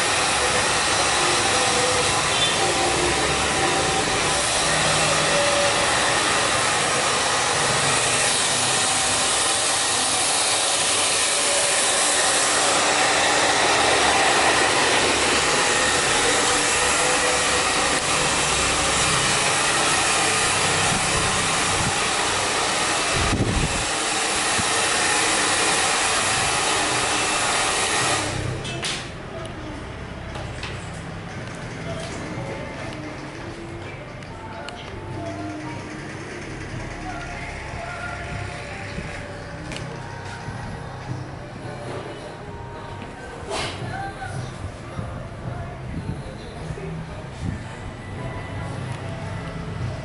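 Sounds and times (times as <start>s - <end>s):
hair dryer blowing: 0.0s - 28.6s.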